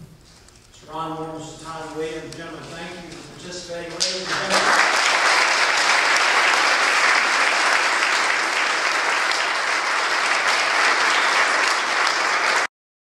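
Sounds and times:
audience applauding: 3.9s - 12.7s.

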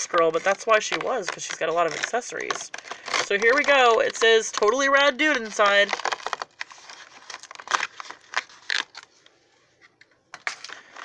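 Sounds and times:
packaging rustling and crinkling: 0.0s - 11.0s.

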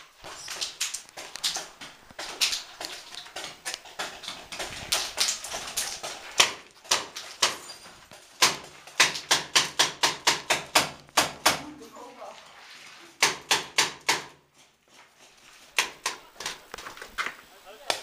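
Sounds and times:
footsteps on rubble-strewn concrete: 0.0s - 9.0s.

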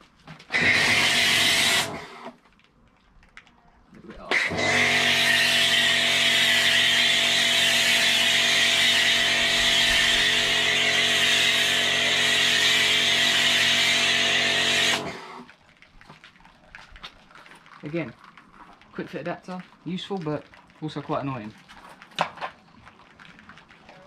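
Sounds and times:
pressure washer motor hum: 0.5s - 2.4s, 4.3s - 15.5s.

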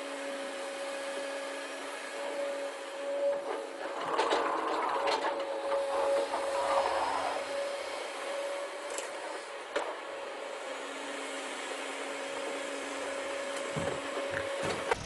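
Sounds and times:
plastic toy trucks scraping dirt: 3.5s - 7.5s.

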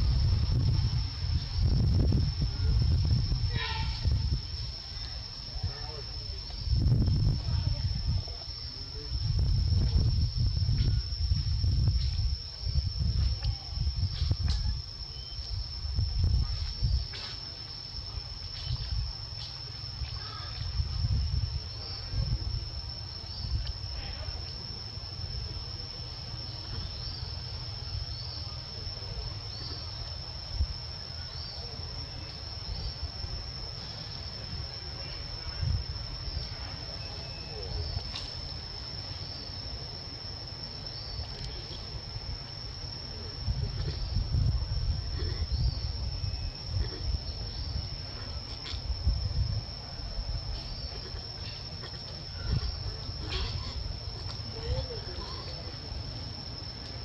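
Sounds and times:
low rumble: 0.0s - 4.7s
insects droning high-pitched: 0.0s - 57.0s.

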